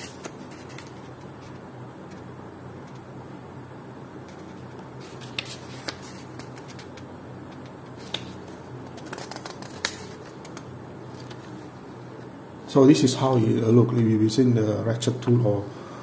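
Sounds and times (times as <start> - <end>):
paper pages rustling and crackling: 0.0 - 2.2, 4.3 - 11.8
faint steady hum: 0.0 - 16.0.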